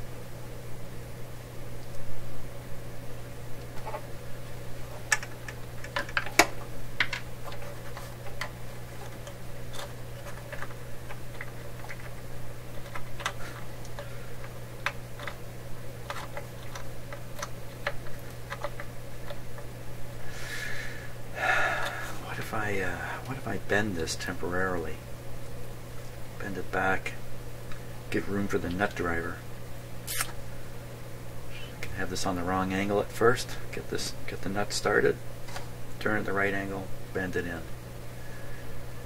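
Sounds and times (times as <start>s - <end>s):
steady low hum: 0.0s - 39.0s
hands handling wires and parts: 4.8s - 19.8s.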